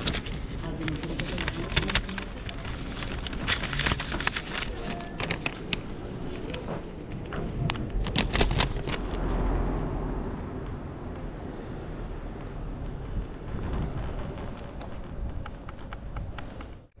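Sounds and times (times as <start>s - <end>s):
paper rustling and crinkling: 0.0s - 9.2s.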